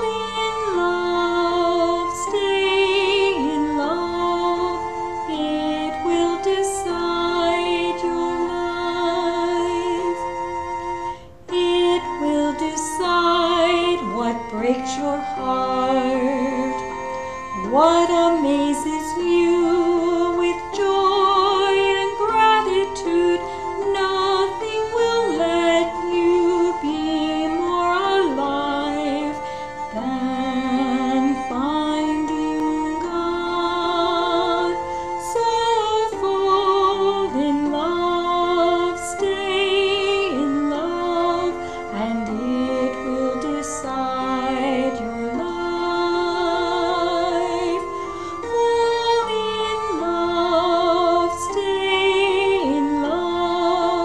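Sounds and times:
woman singing: 0:00.0 - 0:10.5, 0:11.5 - 0:54.0
instrumental accompaniment: 0:00.0 - 0:54.0.

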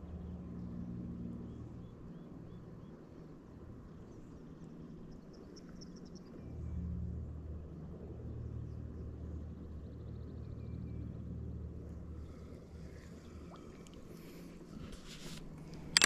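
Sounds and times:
distant engine drone: 0:00.0 - 0:16.0.

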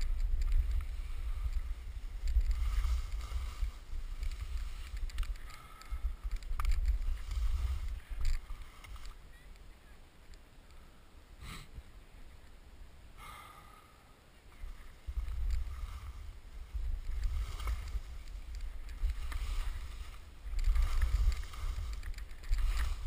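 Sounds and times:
skis carving through snow: 0:00.0 - 0:09.3, 0:14.6 - 0:23.0
wind buffeting microphone: 0:00.0 - 0:09.4, 0:14.6 - 0:23.0.

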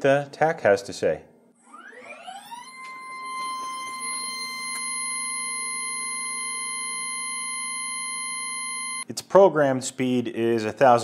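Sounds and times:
stepper motor whine: 0:01.7 - 0:09.0.

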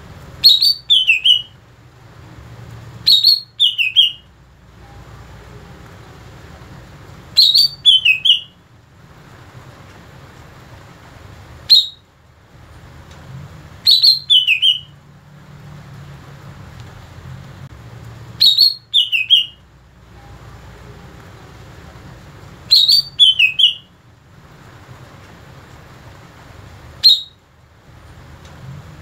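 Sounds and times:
bird singing whistled notes: 0:00.4 - 0:01.6, 0:03.0 - 0:05.0, 0:07.4 - 0:08.6, 0:11.7 - 0:12.1, 0:13.8 - 0:15.0, 0:18.4 - 0:19.6, 0:22.7 - 0:24.0, 0:27.0 - 0:27.4.

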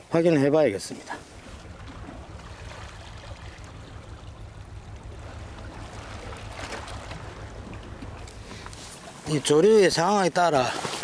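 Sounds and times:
sea water lapping on rocks: 0:00.8 - 0:11.0
low rumble: 0:01.2 - 0:09.6.

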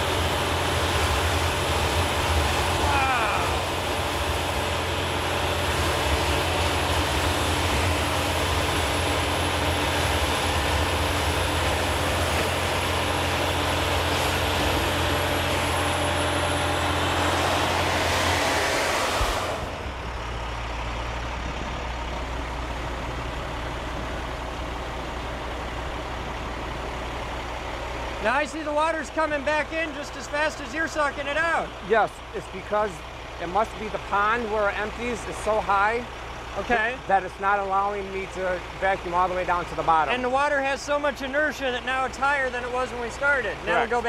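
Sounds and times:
truck engine humming: 0:00.0 - 0:44.0
rushing of air and water: 0:00.1 - 0:20.8.

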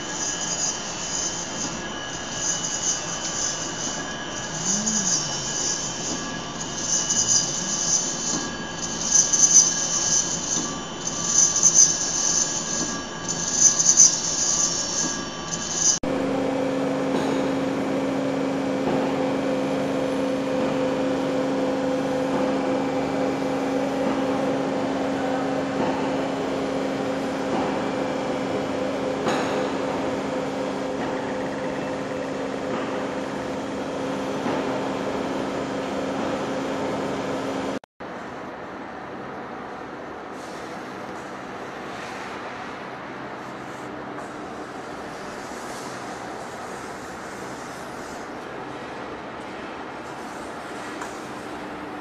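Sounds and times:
lathe high-pitched metal hissing: 0:00.0 - 0:16.0
lathe mechanical drone: 0:00.0 - 0:38.7.

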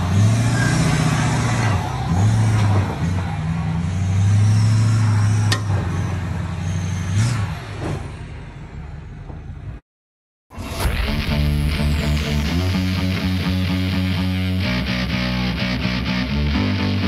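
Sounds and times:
diesel truck engine revving: 0:00.0 - 0:09.1, 0:10.6 - 0:17.0.

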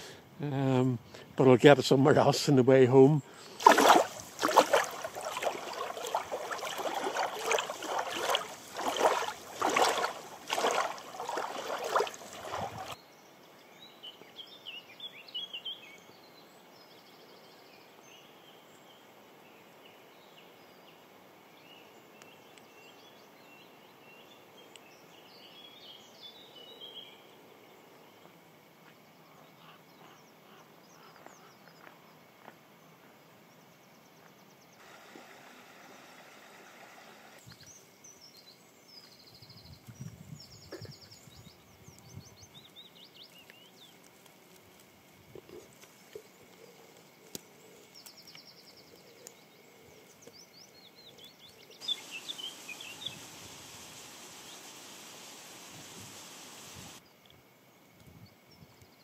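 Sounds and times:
waves lapping on shore: 0:03.5 - 0:13.0, 0:51.8 - 0:57.0
faint bird chirps: 0:47.5 - 0:54.8.

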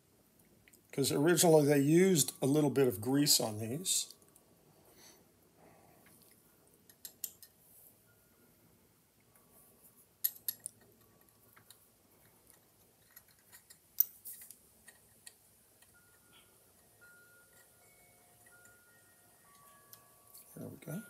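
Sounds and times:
metal gears clicking and tapping: 0:06.9 - 0:07.6, 0:10.2 - 0:16.9.

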